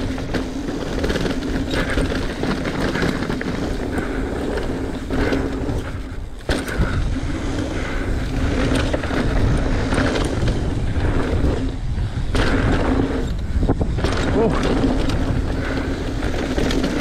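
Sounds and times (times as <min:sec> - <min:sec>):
bike tyres on dirt trail: 0:00.0 - 0:17.0.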